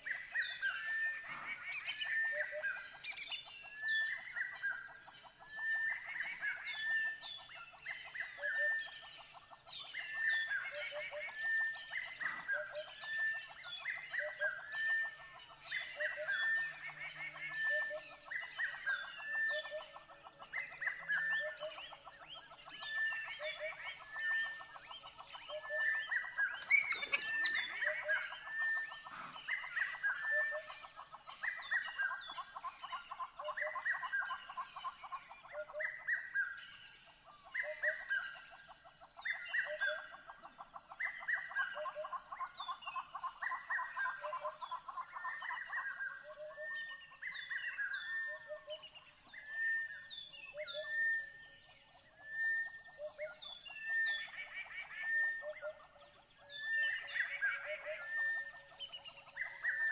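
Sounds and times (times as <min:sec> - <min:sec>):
high chirping animal calls: 0:20.7 - 0:36.4.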